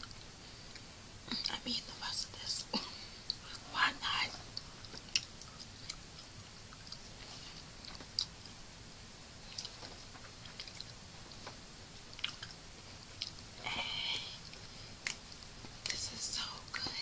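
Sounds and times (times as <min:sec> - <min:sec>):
chewing food: 0:04.3 - 0:08.6, 0:09.4 - 0:13.7, 0:14.3 - 0:16.0
wet mouth clicks and smacks: 0:04.5 - 0:07.0, 0:07.6 - 0:08.5, 0:09.5 - 0:11.5, 0:12.1 - 0:13.5, 0:14.4 - 0:16.0.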